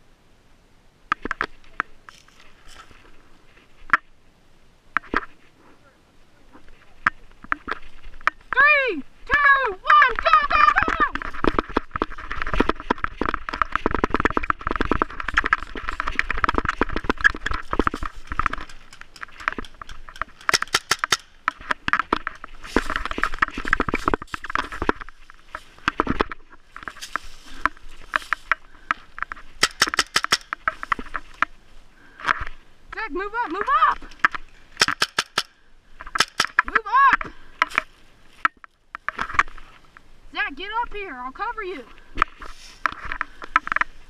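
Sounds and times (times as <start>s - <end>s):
footsteps crunching dry leaves: 2.1s - 3.8s, 10.2s - 21.6s, 22.2s - 29.6s, 42.0s - 44.0s
sharp cracks: 9.3s - 31.5s, 33.5s - 39.5s
gear rattling: 10.2s - 31.4s
rustling in leaf litter: 41.8s - 42.8s.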